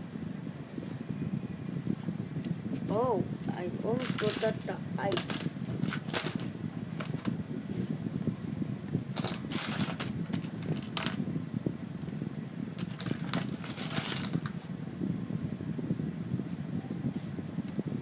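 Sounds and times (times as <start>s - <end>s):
low background whir: 0.0s - 18.0s
paper rustling: 12.8s - 14.5s.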